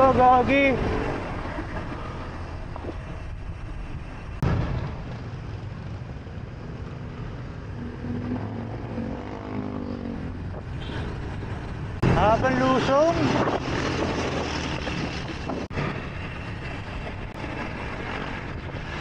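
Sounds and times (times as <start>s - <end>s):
wind and road rush: 0.0s - 19.0s.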